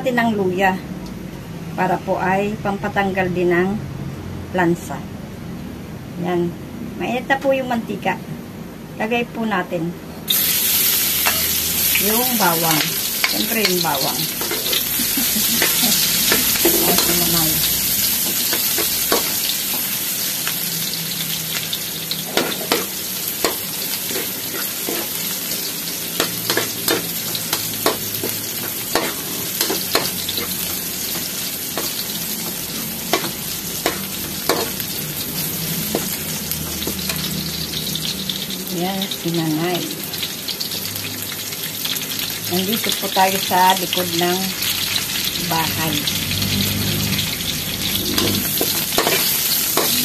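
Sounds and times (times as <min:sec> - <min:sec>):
garlic sizzling in hot oil: 0:10.3 - 0:50.0
metal spatula scraping a wok: 0:10.9 - 0:12.0, 0:12.6 - 0:20.0, 0:22.1 - 0:38.1, 0:46.6 - 0:50.0.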